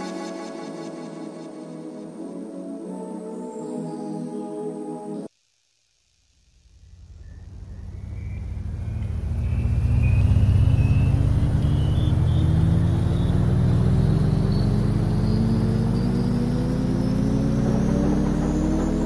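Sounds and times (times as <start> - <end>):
low rumble rising in pitch: 6.6 - 19.0.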